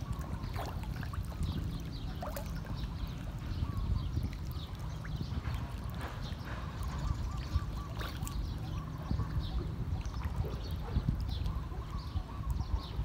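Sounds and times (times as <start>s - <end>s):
fish splashing for food: 0.0s - 3.4s, 4.2s - 9.1s
steady low rumble: 0.0s - 13.0s
water sloshing and splashing: 0.0s - 13.0s.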